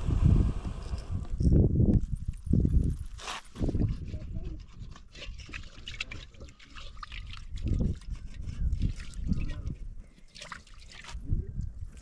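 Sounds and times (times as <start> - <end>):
low rumbling bursts: 0.0 - 1.5
water splashing in metal basin: 5.1 - 8.0.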